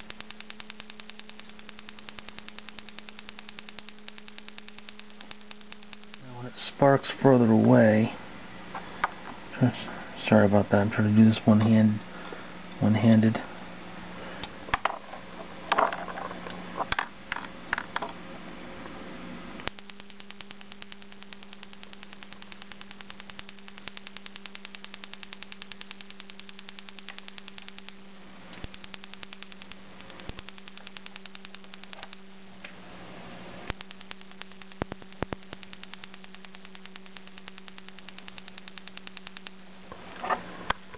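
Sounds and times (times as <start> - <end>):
igniter sparking clicks: 0.0 - 8.0, 18.8 - 32.8, 33.6 - 40.9
low electrical hum: 0.0 - 40.9.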